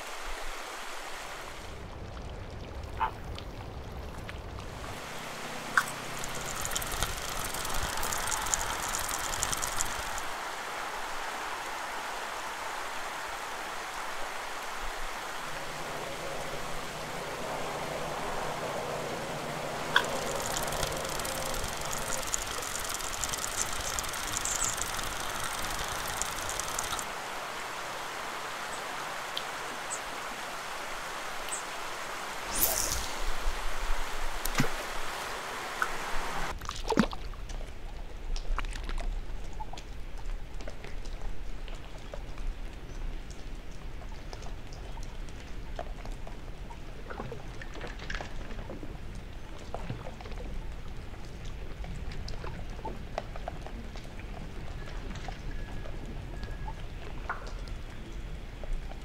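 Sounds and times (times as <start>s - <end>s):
river water rushing: 4.7s - 36.6s
small clicks: 5.7s - 10.3s, 19.9s - 27.1s.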